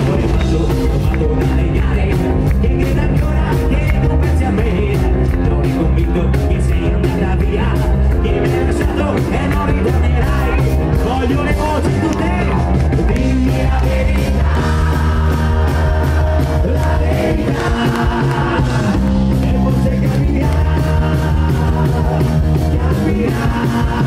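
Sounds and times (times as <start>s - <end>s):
live rock band playing: 0.0s - 24.0s
man singing: 0.0s - 24.0s
steady drum beat: 0.0s - 24.0s.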